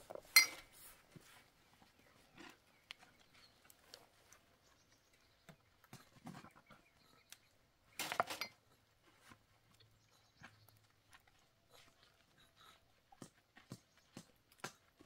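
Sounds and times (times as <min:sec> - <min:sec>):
glass clattering: 0:00.3 - 0:00.6, 0:08.0 - 0:08.6
glasses clinking: 0:00.3 - 0:00.7, 0:08.1 - 0:08.6.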